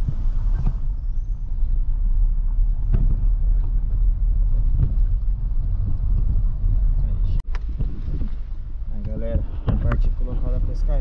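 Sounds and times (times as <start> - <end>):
car engine and road rumble: 0.0 - 11.0.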